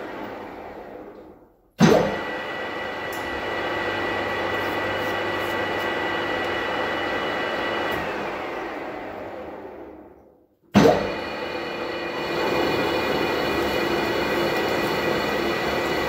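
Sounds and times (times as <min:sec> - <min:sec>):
lathe motor whining: 0:02.2 - 0:10.0, 0:11.2 - 0:16.0.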